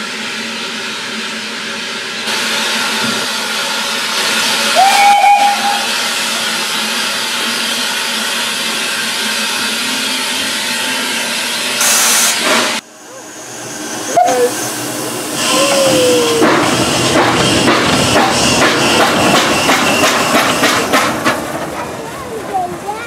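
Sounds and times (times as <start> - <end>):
train running noise: 0.0 - 23.0
steam hissing: 0.2 - 21.6
steam whistle: 4.7 - 6.6.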